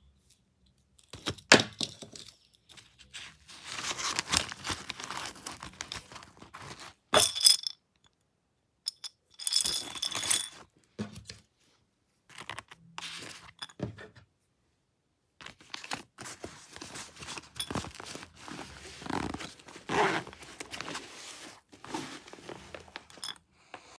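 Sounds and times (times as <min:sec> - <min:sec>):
rummaging through fabric bag: 0:03.0 - 0:07.1, 0:15.4 - 0:23.4.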